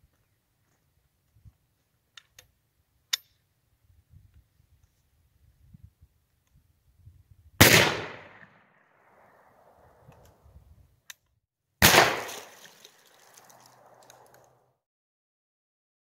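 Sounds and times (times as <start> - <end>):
shotgun bang: 7.6 - 8.6, 11.8 - 12.7.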